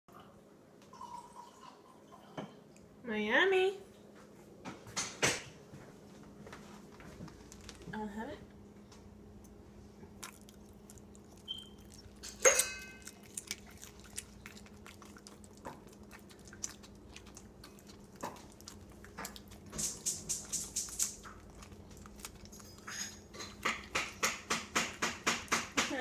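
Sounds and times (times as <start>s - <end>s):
dog crunching a chip: 10.0s - 24.5s
wet licking: 10.1s - 25.3s
chewing and smacking clicks: 10.2s - 25.6s.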